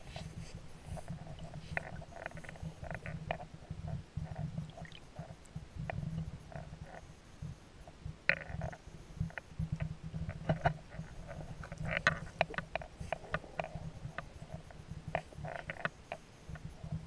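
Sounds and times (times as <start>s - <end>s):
muffled underwater rumble: 0.0s - 17.0s
sharp underwater clicks: 8.3s - 17.0s.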